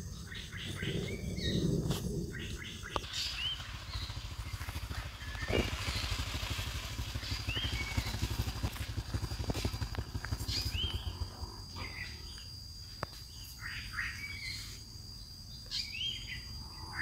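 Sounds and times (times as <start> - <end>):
bird chirps: 0.0 - 6.2, 7.1 - 8.4, 10.0 - 12.6, 13.2 - 17.0
small motor pulsing rumble: 0.0 - 12.8.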